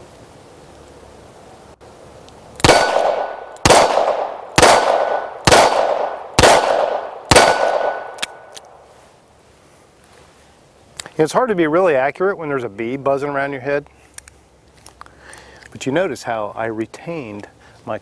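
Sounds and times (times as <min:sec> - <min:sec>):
revolver shots: 0:02.6 - 0:08.5.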